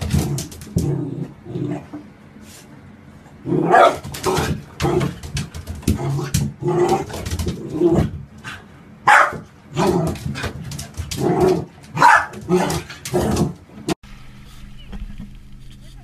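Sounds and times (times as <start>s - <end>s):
puppy barking and yipping: 9.1s - 9.4s, 12.0s - 12.6s.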